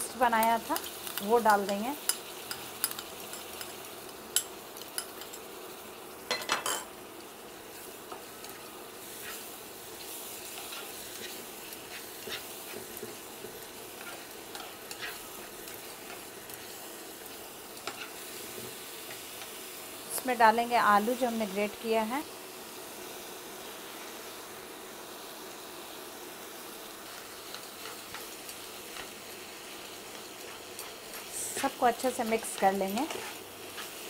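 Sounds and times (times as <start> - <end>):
paste sizzling in hot oil: 0.0 - 34.0
spatula tapping and scraping pan: 10.5 - 16.3, 30.4 - 34.0.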